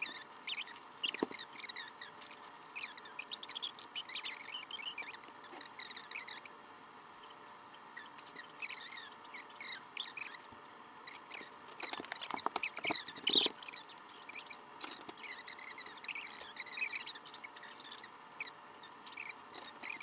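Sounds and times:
rubber bands squeaking: 0.0s - 6.5s, 11.1s - 18.5s, 19.1s - 20.0s.

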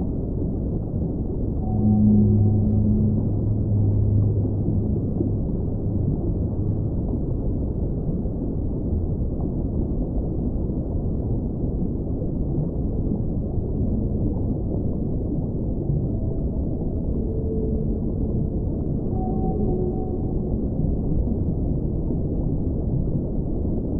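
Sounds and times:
whale song: 0.2s - 9.7s, 12.7s - 23.4s
low rushing noise: 1.5s - 8.7s.

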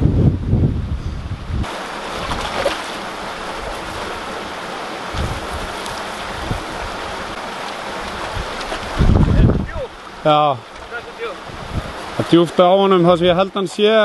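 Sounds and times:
wind rumble on microphone: 0.0s - 9.9s, 11.4s - 12.2s
wind hiss: 0.0s - 14.0s
creek water running: 1.2s - 14.0s.

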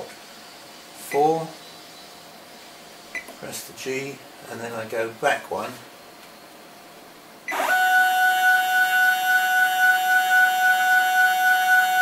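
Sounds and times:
stepper motor whine: 7.5s - 12.0s.

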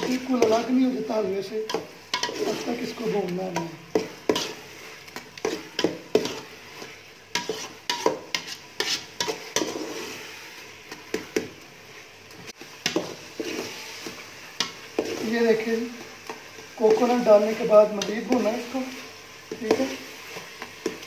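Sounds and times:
steady sizzle: 0.0s - 21.0s
metal spoon scraping metal pot: 1.7s - 2.9s, 4.3s - 4.6s, 7.3s - 10.4s.

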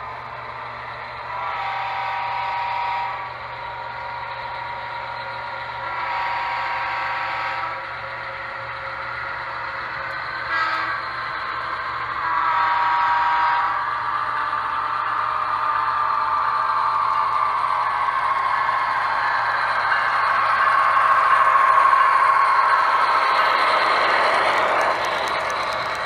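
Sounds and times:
locomotive air horn blasts: 1.4s - 3.2s, 5.9s - 7.8s, 10.5s - 11.0s, 12.2s - 13.8s.

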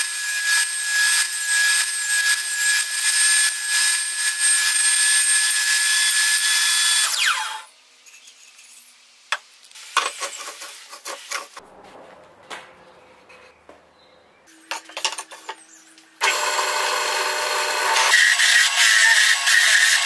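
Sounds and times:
drill bit boring into wood: 16.2s - 20.0s
drill press motor whine: 16.2s - 20.0s.

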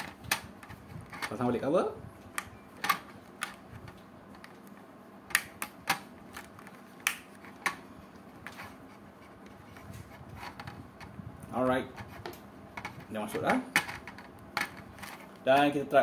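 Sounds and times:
plastic clicks and knocks: 12.2s - 15.2s.

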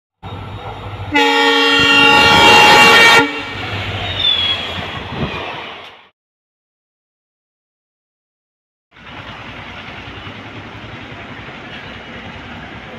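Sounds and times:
train coaches rumbling past: 0.2s - 6.1s, 8.9s - 12.9s
train horn blast: 1.1s - 3.7s.

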